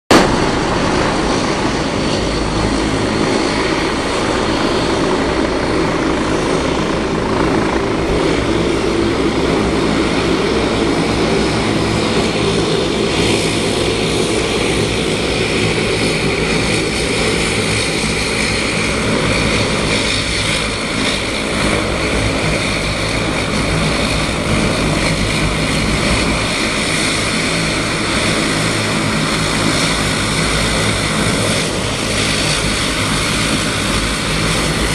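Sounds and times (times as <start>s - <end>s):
high turbine whine: 0.1s - 34.9s
turboprop engines droning: 0.1s - 34.9s.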